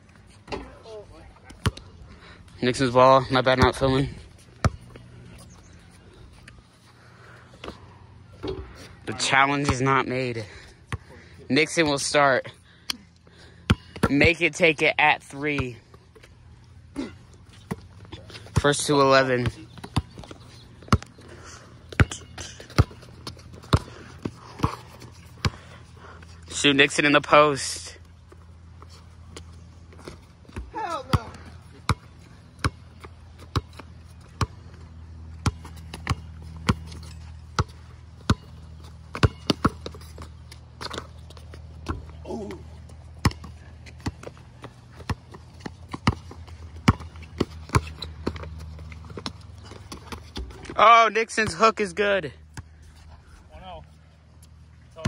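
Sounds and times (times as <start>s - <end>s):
basketball bouncing on concrete: 3.5s - 5.0s, 13.6s - 14.4s, 15.5s - 15.9s, 17.5s - 21.2s, 21.8s - 25.7s, 29.4s - 34.7s, 35.3s - 50.8s.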